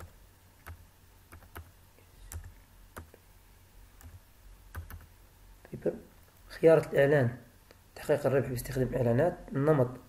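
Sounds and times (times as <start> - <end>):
computer keyboard keystrokes: 0.0 - 1.7, 2.3 - 3.2, 4.0 - 5.1.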